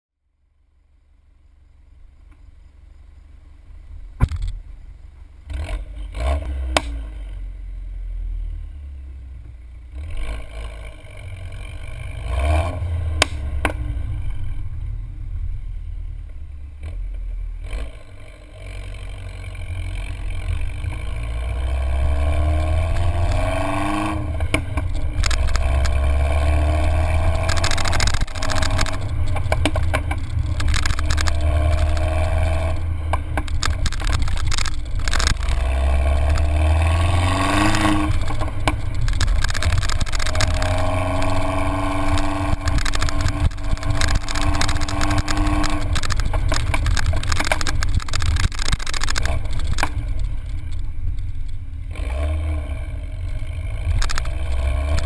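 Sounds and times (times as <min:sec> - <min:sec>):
car engine rumbling and accelerating: 0:00.3 - 0:55.0
wind and road noise: 0:02.0 - 0:55.0
sharp knocks: 0:04.2 - 0:04.6.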